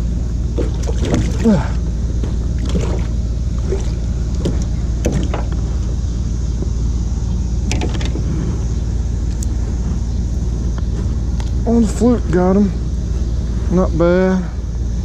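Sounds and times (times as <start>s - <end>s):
outboard motor running: 0.0s - 15.0s
water splashes and knocks: 0.5s - 1.6s, 2.2s - 5.6s.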